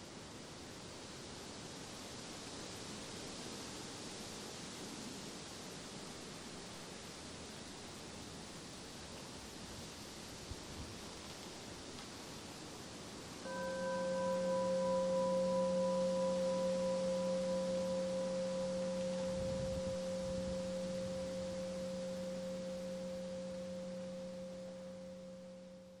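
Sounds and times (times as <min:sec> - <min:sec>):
meditation bowl ringing: 0:13.4 - 0:26.0.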